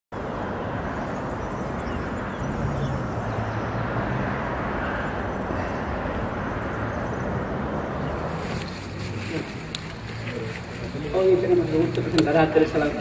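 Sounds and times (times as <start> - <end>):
outdoor rumble and rushing: 0.2 - 13.0.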